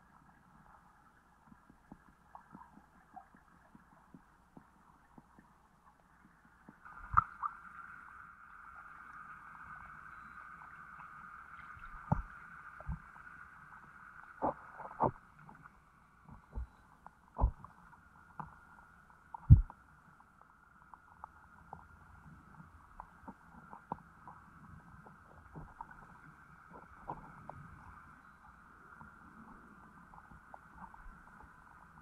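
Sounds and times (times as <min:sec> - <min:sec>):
dull underwater knocks and thumps: 0:11.8 - 0:13.1, 0:14.4 - 0:15.6, 0:16.2 - 0:18.6, 0:19.3 - 0:19.8, 0:25.0 - 0:27.6
steady mid-pitched hum: 0:14.3 - 0:20.7.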